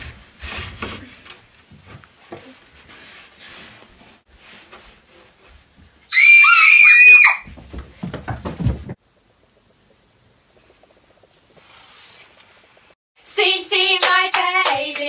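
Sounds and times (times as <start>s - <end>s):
thumps and scuffling: 0.0s - 6.1s, 7.4s - 9.0s
girls screaming: 6.1s - 7.5s.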